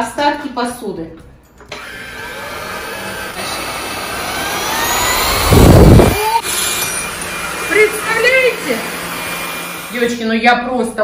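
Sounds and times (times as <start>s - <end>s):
stick vacuum whining: 1.7s - 10.2s.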